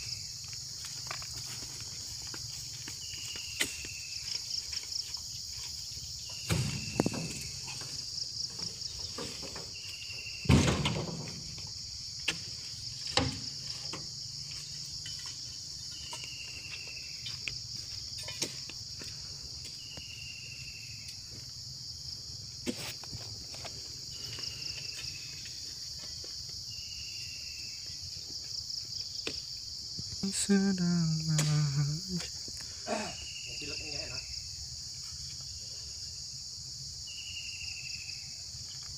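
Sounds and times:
insect chorus: 0:00.0 - 0:38.9
dull thuds of fruit bunches: 0:06.4 - 0:07.8
man calling out: 0:30.2 - 0:32.3.

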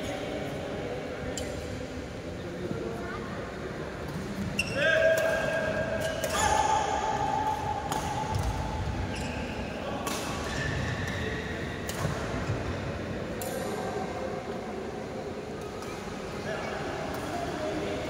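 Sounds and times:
rackets hitting shuttlecock: 0:07.4 - 0:08.7, 0:10.0 - 0:12.6, 0:13.3 - 0:13.8.

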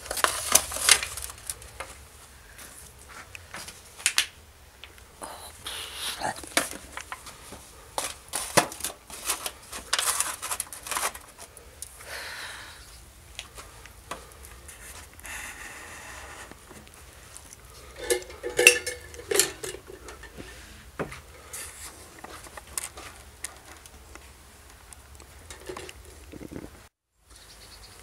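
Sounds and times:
foil trays crinkling and clattering: 0:00.0 - 0:04.3, 0:06.4 - 0:11.9, 0:13.4 - 0:20.8, 0:21.4 - 0:24.3.

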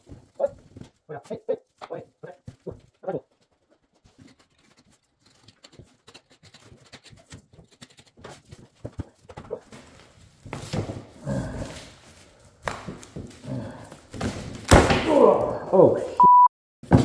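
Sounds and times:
rustling and crunching stuffing: 0:00.0 - 0:14.6.

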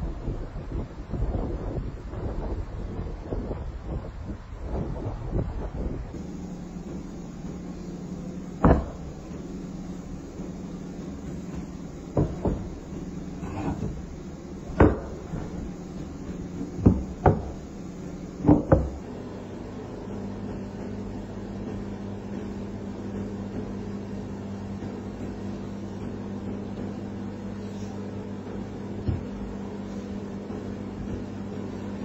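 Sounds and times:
low machine hum: 0:00.0 - 0:32.0
sharp knocks: 0:08.6 - 0:09.4, 0:11.5 - 0:12.8, 0:14.7 - 0:15.6, 0:16.6 - 0:17.6, 0:18.4 - 0:19.0.

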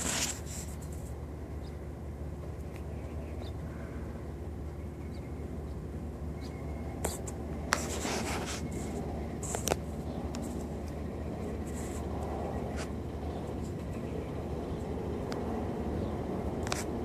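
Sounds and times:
rubbing or scratching: 0:00.0 - 0:01.2, 0:07.0 - 0:10.8, 0:11.6 - 0:12.9
steady low hum: 0:00.0 - 0:17.0.

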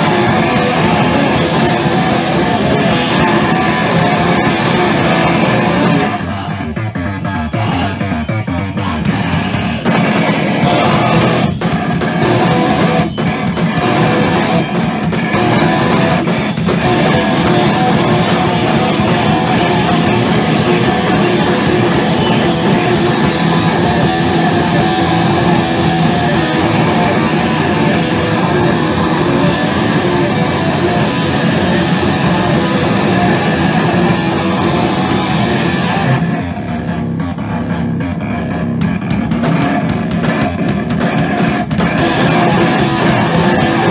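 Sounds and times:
drum kit: 0:00.0 - 0:43.9
electric guitar: 0:00.0 - 0:43.9.

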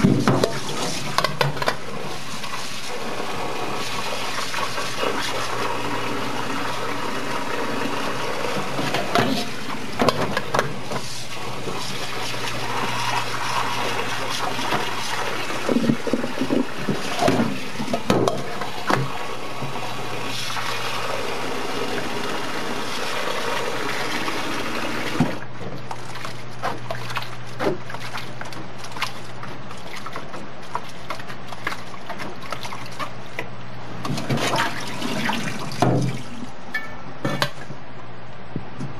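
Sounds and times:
hands rinsing noodles: 0:00.0 - 0:33.4
tap water running into colander: 0:00.0 - 0:36.6
small knocks and splashes: 0:25.2 - 0:36.3.

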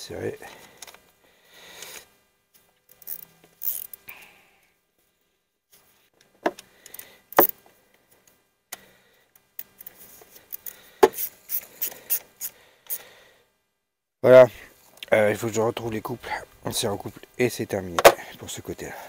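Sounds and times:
small metallic clicks: 0:02.8 - 0:04.1, 0:08.2 - 0:13.0
gloved hands rubbing: 0:09.9 - 0:13.0.

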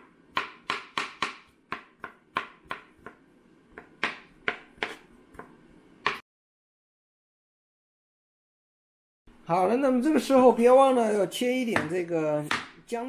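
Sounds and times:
knife chopping on plastic board: 0:00.0 - 0:06.2, 0:11.7 - 0:12.8.

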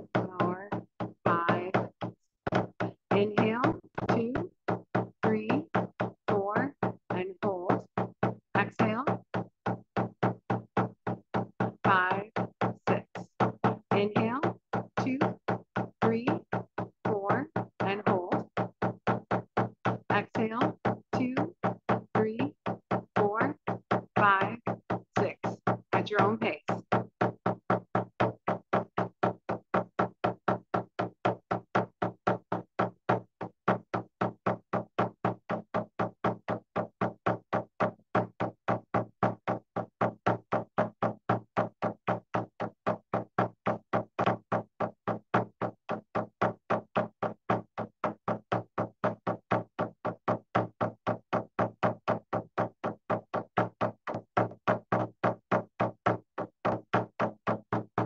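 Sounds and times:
hand drum beating slowly: 0:00.0 - 0:58.0.

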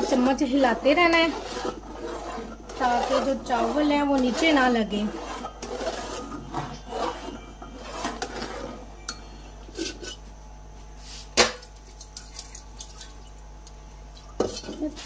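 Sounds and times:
metal spoon scraping pot: 0:00.0 - 0:10.3, 0:14.4 - 0:15.0.

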